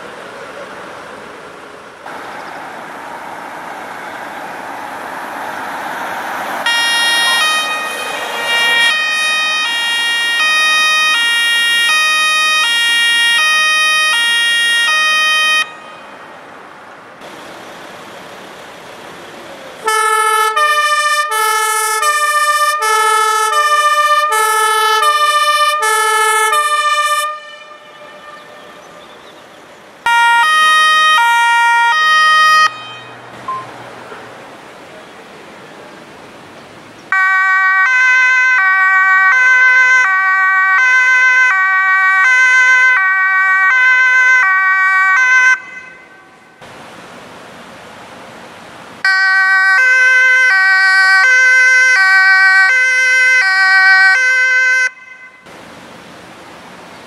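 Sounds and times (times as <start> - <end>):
rising rush of noise: 1.6 - 9.9
two-tone sirens: 2.1 - 17.4, 19.0 - 29.4, 30.0 - 34.2, 37.1 - 46.6, 49.0 - 55.6.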